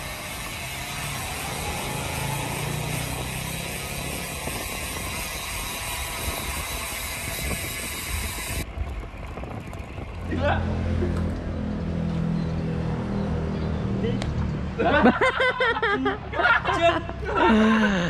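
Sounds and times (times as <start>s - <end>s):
wind on microphone: 0.0s - 10.4s
bicycle tyre noise: 0.0s - 12.6s.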